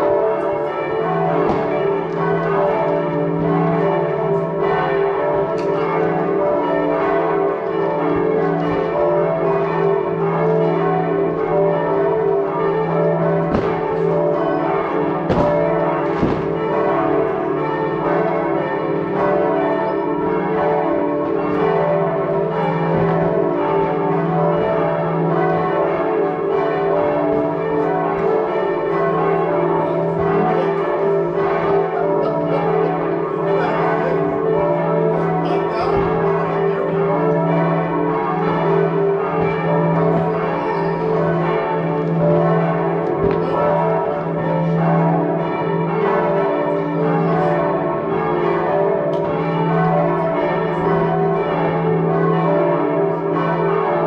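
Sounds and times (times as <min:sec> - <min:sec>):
church bells pealing: 0:00.0 - 0:54.0
firework bangs: 0:13.5 - 0:13.9, 0:15.3 - 0:16.6.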